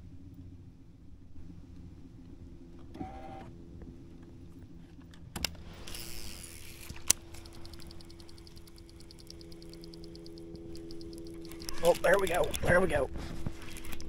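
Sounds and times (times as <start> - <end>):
sharp clicks: 5.4 - 12.9
electric motor humming: 5.8 - 14.0
fast light ticking: 6.2 - 12.6.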